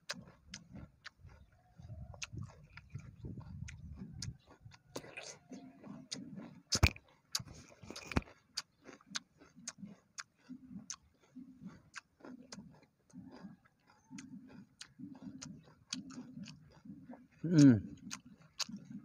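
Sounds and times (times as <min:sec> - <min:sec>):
person chewing crunchy food: 0:00.0 - 0:19.0.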